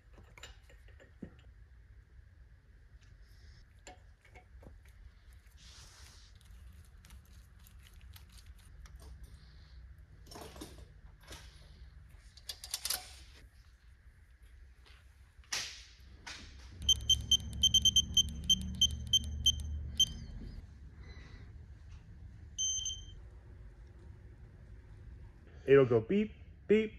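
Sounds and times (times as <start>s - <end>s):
torque wrench beeping: 16.8s - 20.3s.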